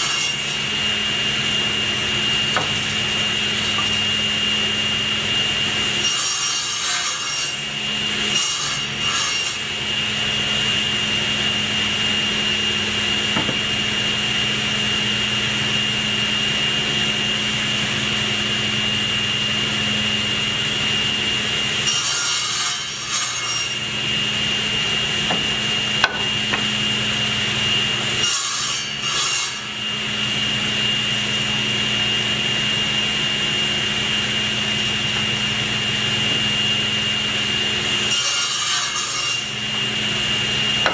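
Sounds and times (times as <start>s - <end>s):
saw blade cutting wood: 0.0s - 4.2s, 5.6s - 9.8s, 21.8s - 26.9s, 27.9s - 29.8s, 38.0s - 39.7s
table saw running: 0.0s - 40.9s.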